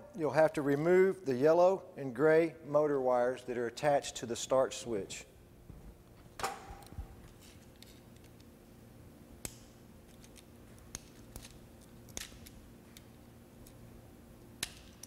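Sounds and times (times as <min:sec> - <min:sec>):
pliers clicking on wire terminals: 0:09.4 - 0:13.8, 0:14.6 - 0:15.0.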